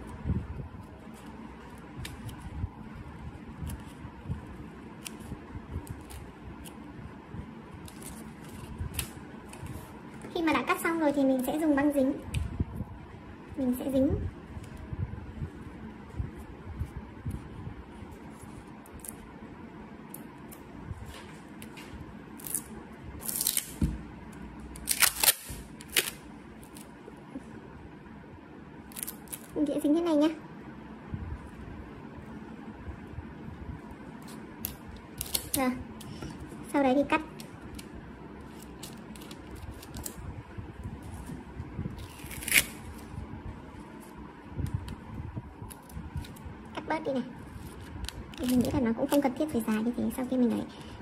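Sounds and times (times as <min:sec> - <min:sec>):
packing tape ripping off roll: 0:22.4 - 0:23.8, 0:24.8 - 0:26.9, 0:34.6 - 0:35.6, 0:42.0 - 0:43.0
scissors snipping paper: 0:47.6 - 0:49.3.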